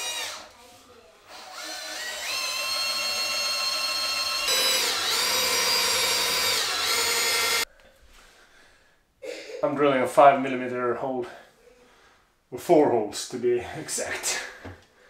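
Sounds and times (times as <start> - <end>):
cordless drill drilling metal: 0.0 - 0.5, 1.3 - 7.7.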